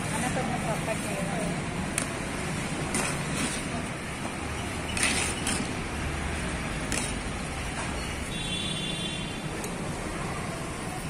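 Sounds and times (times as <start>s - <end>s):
road traffic hum: 0.0s - 11.0s.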